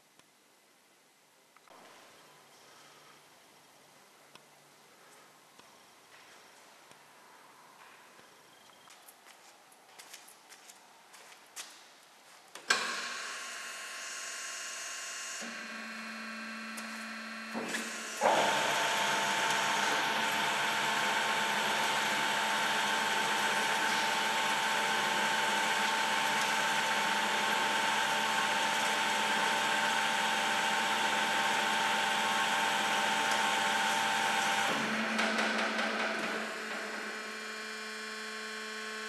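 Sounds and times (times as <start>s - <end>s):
band saw whining: 15.2s - 39.0s.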